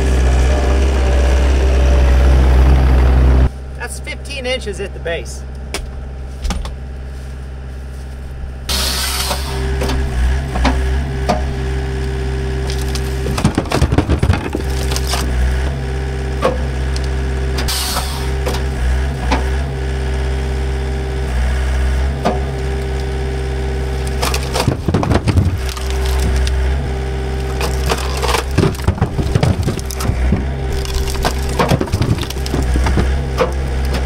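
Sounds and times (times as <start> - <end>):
diesel engine running: 0.0 - 34.0
firewood clattering into truck bed: 12.7 - 15.4, 24.1 - 26.8, 27.5 - 34.0.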